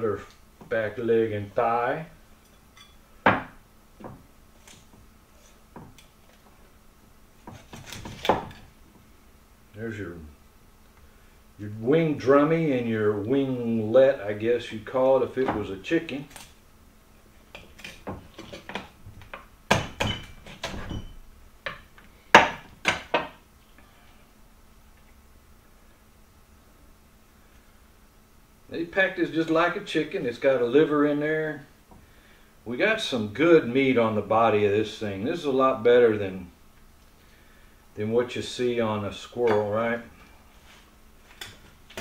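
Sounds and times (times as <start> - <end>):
knife chopping on wooden board: 7.5 - 8.6.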